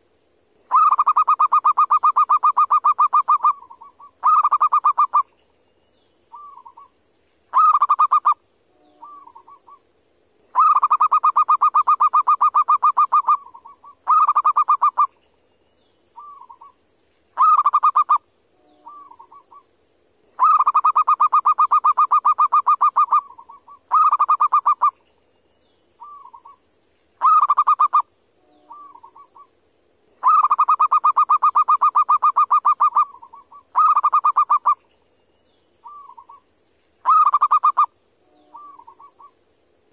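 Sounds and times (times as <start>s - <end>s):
steady high hiss: 0.0s - 39.9s
dove cooing: 0.7s - 5.2s, 7.5s - 8.4s, 10.6s - 15.1s, 17.4s - 18.2s, 20.4s - 24.9s, 27.2s - 28.0s, 30.2s - 34.8s, 37.0s - 37.9s, 38.5s - 39.3s.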